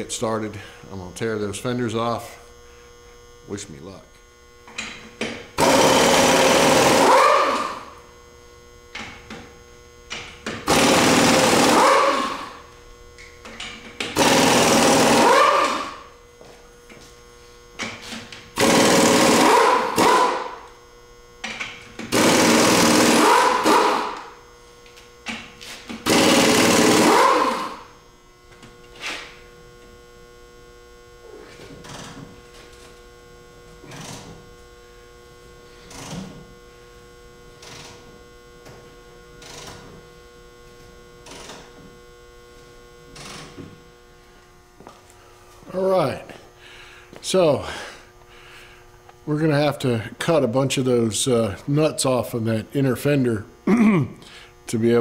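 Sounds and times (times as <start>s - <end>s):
pneumatic impact wrench hammering: 4.6s - 7.9s, 10.1s - 12.6s, 13.4s - 16.1s, 17.8s - 20.7s, 21.4s - 24.4s, 25.2s - 27.9s, 31.3s - 32.7s, 33.8s - 34.4s, 35.7s - 36.4s, 37.6s - 38.8s, 39.4s - 40.0s, 41.2s - 41.8s, 43.1s - 43.8s.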